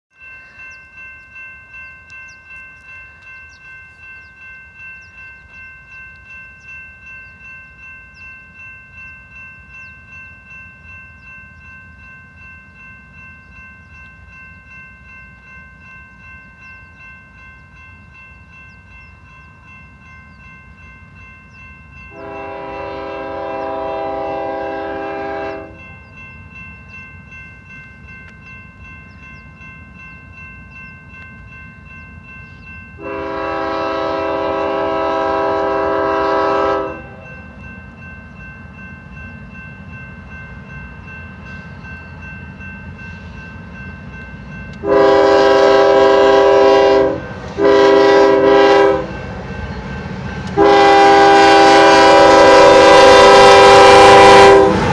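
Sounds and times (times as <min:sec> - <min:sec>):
crossing bell ringing: 0:00.1 - 0:54.9
locomotive air horn blast: 0:22.1 - 0:25.8, 0:33.0 - 0:37.2, 0:44.8 - 0:49.1, 0:50.6 - 0:54.9.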